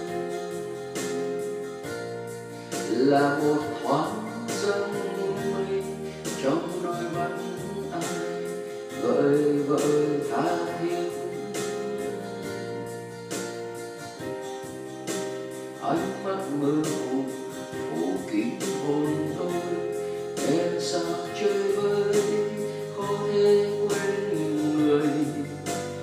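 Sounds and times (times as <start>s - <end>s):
keyboard backing music: 0.0s - 26.0s
man singing into microphone: 2.8s - 12.7s, 15.8s - 26.0s.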